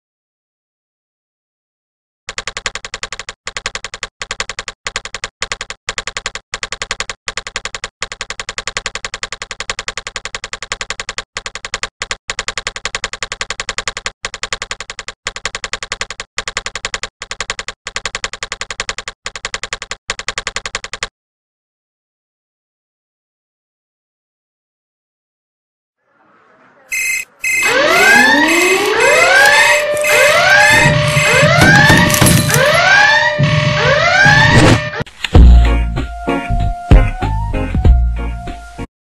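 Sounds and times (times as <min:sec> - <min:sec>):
rapid keyboard typing clicks: 0:02.3 - 0:21.1.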